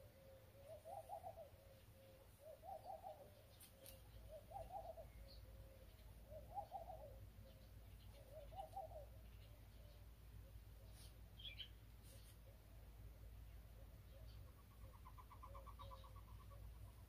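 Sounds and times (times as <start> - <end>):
dove cooing: 0.0 - 9.2, 13.8 - 16.8.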